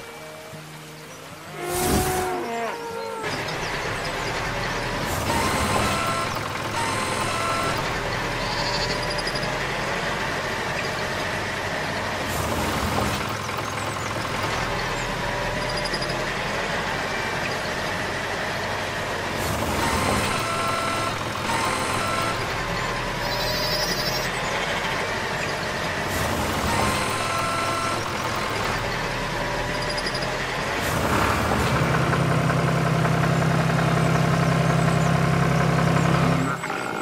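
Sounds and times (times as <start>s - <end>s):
tractor engine running: 3.2s - 37.0s.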